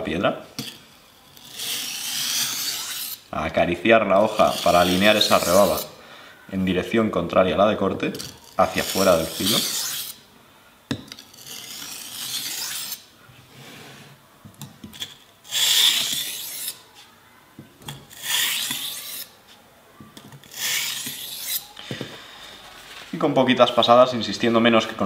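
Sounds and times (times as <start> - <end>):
knife scraping on wet whetstone: 0.6 - 3.2, 4.2 - 5.9, 8.1 - 10.2, 11.2 - 13.0, 14.9 - 17.1, 18.1 - 19.4, 20.4 - 21.7.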